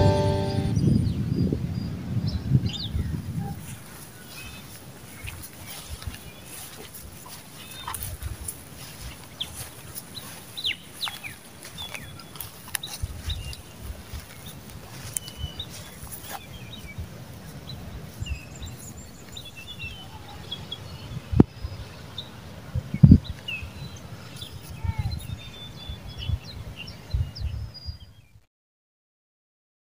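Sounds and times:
wind rumble on microphone: 0:00.0 - 0:28.4
small birds chirping: 0:02.7 - 0:28.4.

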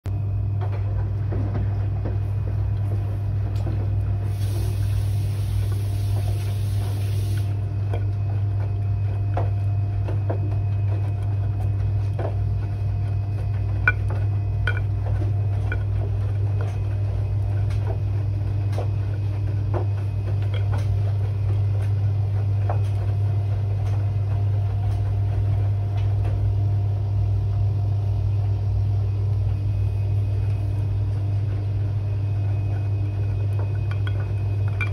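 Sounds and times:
washing machine humming: 0:00.1 - 0:34.9
hiss: 0:04.3 - 0:07.5
clicks and knocks in drum: 0:13.8 - 0:16.8.

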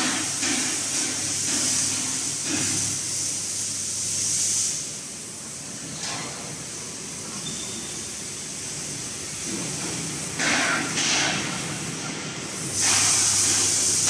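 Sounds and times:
steady hiss: 0:00.0 - 0:14.0
bursts of hissing: 0:11.7 - 0:14.0.

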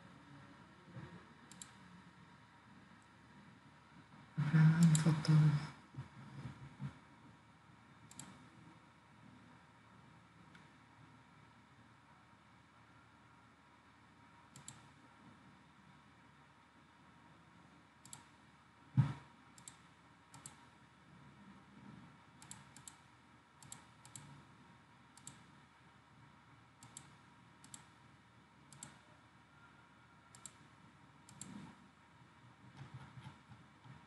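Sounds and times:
computer mouse clicking: 0:01.5 - 0:01.8, 0:08.1 - 0:08.5, 0:14.5 - 0:15.0, 0:18.0 - 0:18.4, 0:19.5 - 0:20.7, 0:22.4 - 0:24.4, 0:25.2 - 0:25.6, 0:26.8 - 0:28.0, 0:28.7 - 0:29.0, 0:30.3 - 0:31.8.

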